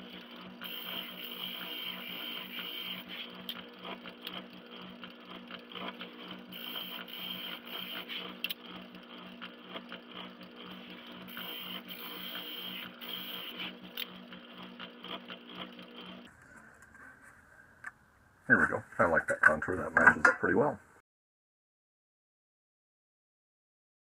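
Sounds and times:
spindle sander humming: 0:00.0 - 0:17.3.

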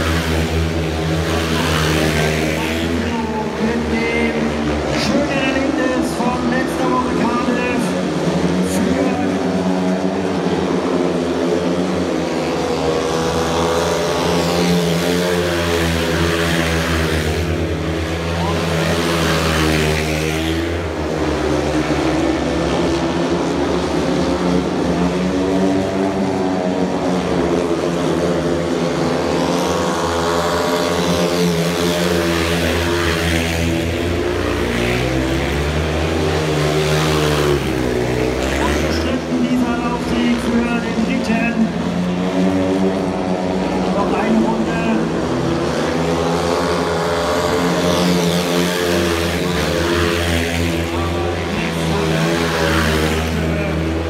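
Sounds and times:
motorcycle engines racing: 0:00.0 - 0:54.0.

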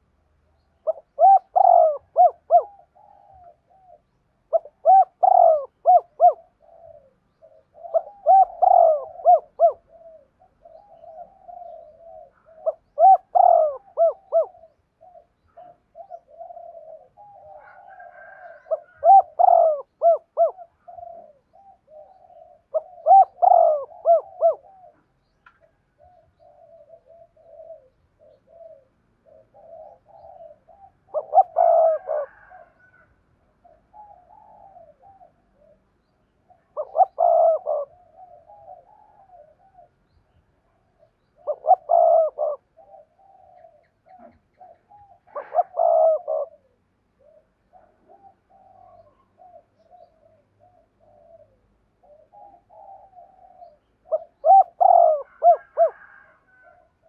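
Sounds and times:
dove cooing: 0:00.0 - 0:57.0
dove gurgling notes: 0:00.8 - 0:03.2, 0:04.5 - 0:06.9, 0:07.7 - 0:09.9, 0:11.0 - 0:14.6, 0:18.3 - 0:21.3, 0:22.2 - 0:24.7, 0:29.4 - 0:32.5, 0:36.8 - 0:39.0, 0:41.4 - 0:43.5, 0:45.2 - 0:46.6, 0:54.1 - 0:56.2.

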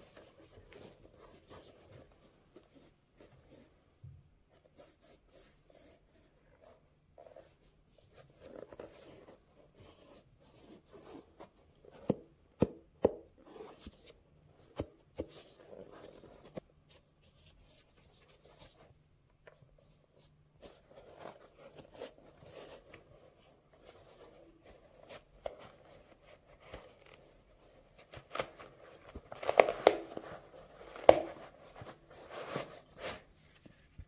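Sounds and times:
glove fabric rustling on shoe: 0:04.5 - 0:12.3, 0:20.0 - 0:34.0.

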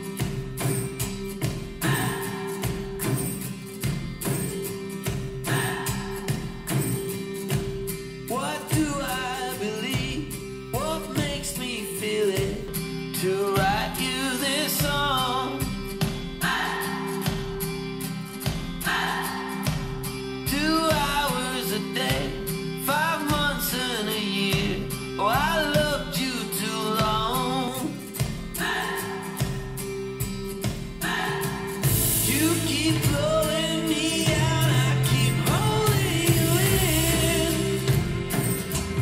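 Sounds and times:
song with singing over beat: 0:00.0 - 0:39.0.

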